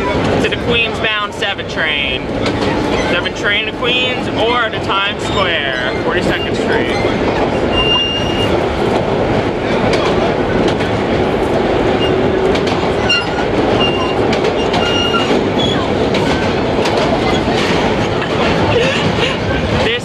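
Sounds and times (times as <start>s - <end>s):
train wheels rumbling on rails: 0.0s - 20.0s
wheel squeals: 2.4s - 3.4s, 4.9s - 8.6s, 12.0s - 12.3s, 12.9s - 17.8s.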